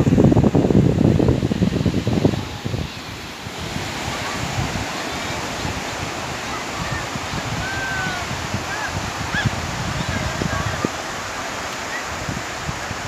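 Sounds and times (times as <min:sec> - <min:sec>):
sea surf: 0:00.0 - 0:13.0
wind: 0:00.0 - 0:13.0
faint high calls: 0:06.4 - 0:09.5.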